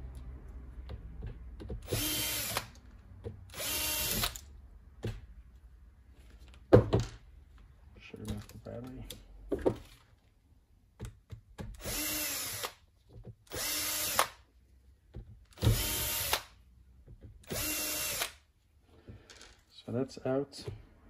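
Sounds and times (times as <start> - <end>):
cordless drill whirring: 1.8 - 2.8, 3.5 - 4.5, 11.8 - 12.8, 13.5 - 14.4, 15.6 - 16.5, 17.4 - 18.4.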